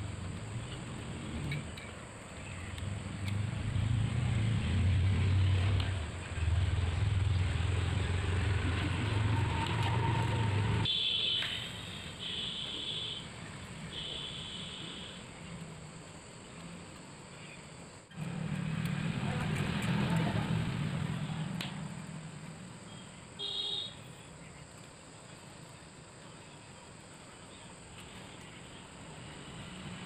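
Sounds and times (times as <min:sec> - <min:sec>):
low engine hum: 0:00.0 - 0:10.9, 0:18.1 - 0:23.2.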